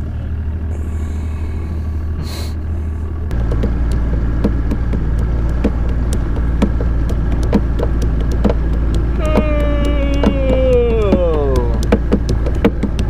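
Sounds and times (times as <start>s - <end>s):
outboard motor humming: 0.0s - 13.0s
short knocks: 3.3s - 13.0s.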